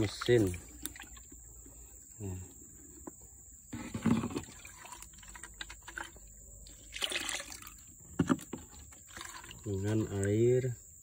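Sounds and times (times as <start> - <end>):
liquid splashing and gurgling: 0.0 - 1.4, 4.0 - 7.9, 8.6 - 10.2.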